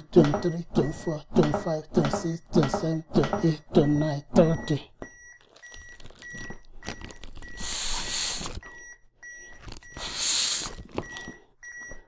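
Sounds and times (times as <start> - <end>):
short high metronome beeps: 0.0 - 6.6
breaths blown into manikin: 7.6 - 8.6, 9.9 - 10.9.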